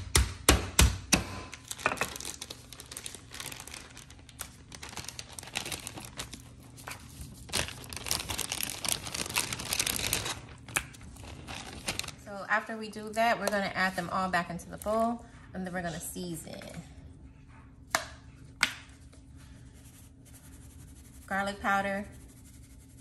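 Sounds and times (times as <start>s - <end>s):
plastic crinkling and rustling: 1.5s - 12.3s.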